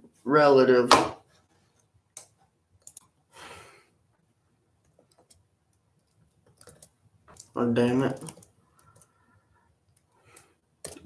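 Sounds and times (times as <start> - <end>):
laptop keys clicking: 4.8 - 7.5, 8.1 - 9.1.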